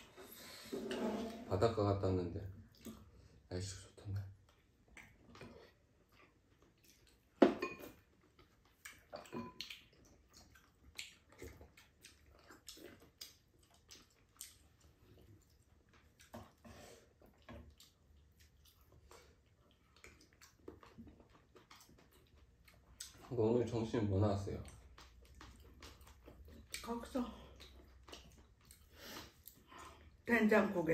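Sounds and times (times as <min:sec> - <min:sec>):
slurping soup: 0:00.0 - 0:01.5
chewing: 0:02.6 - 0:30.2
spoons clinking on bowls: 0:07.6 - 0:08.0.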